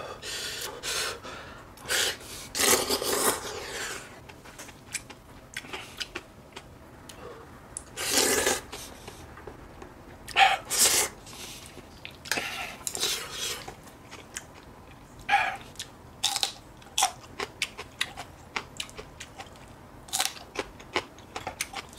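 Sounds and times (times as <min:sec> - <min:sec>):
chili pepper crunching: 0:12.0 - 0:21.9.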